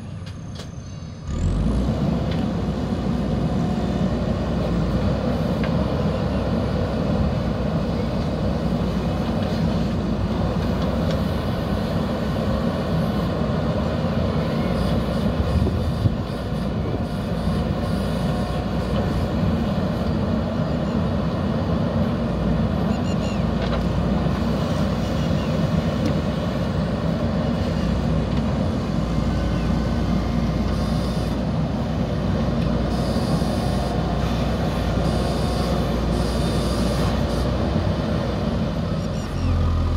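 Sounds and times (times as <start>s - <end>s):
diesel engine rumbling: 0.0s - 39.9s.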